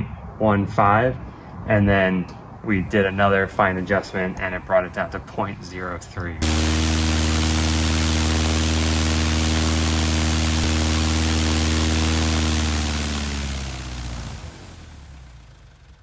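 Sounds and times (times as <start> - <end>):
aircraft engine turning propeller: 6.4 - 16.0.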